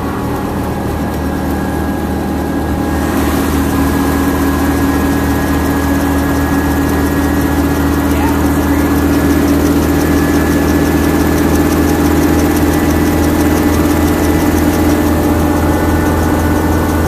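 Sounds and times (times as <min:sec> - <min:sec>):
helicopter engine and rotor: 0:00.0 - 0:17.0.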